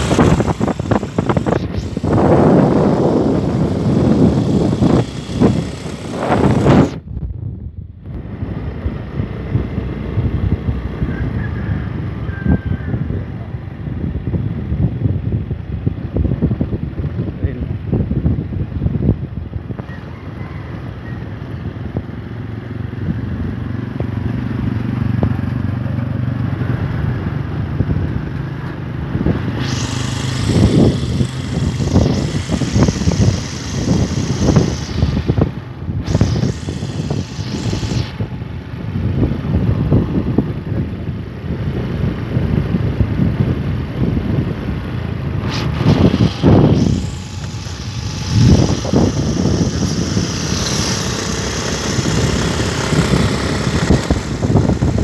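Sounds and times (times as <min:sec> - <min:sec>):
scooter engine running: 0:00.0 - 0:07.1, 0:20.7 - 0:55.0
wind buffeting microphone: 0:00.0 - 0:55.0.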